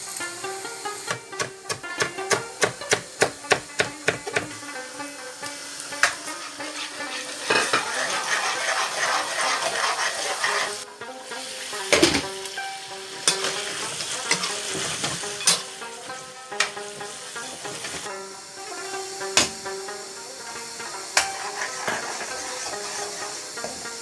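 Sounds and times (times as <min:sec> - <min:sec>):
onions sizzling in oil: 0:00.0 - 0:24.0
spoon knocking against pan: 0:01.1 - 0:04.6, 0:19.4 - 0:19.6
metal spoon scraping pan: 0:06.0 - 0:10.8, 0:13.2 - 0:15.7, 0:20.9 - 0:23.9.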